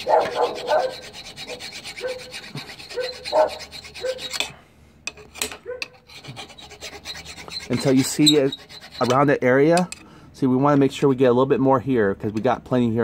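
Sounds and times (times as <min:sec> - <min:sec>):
hand file scraping metal: 0:00.0 - 0:10.0.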